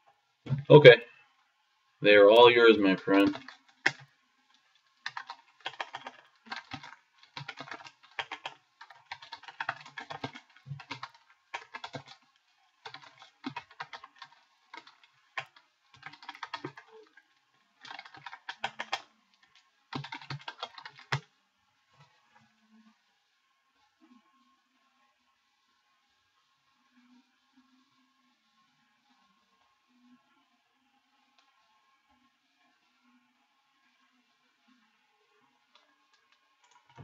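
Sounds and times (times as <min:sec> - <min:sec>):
computer keyboard typing: 0:02.4 - 0:04.1, 0:05.0 - 0:12.2, 0:12.8 - 0:17.2, 0:17.8 - 0:21.3, 0:36.6 - 0:37.0.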